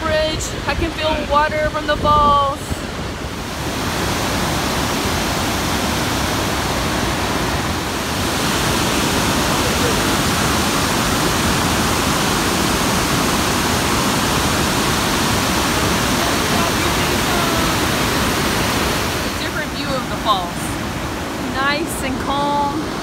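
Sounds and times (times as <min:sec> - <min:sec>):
waterfall roaring: 0:00.0 - 0:23.0.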